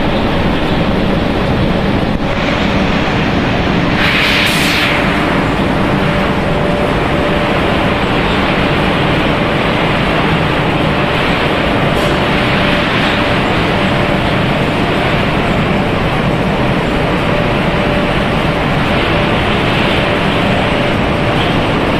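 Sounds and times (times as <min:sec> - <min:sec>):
loud mechanical din of machinery: 0:00.0 - 0:21.9
loud hiss: 0:02.2 - 0:16.1.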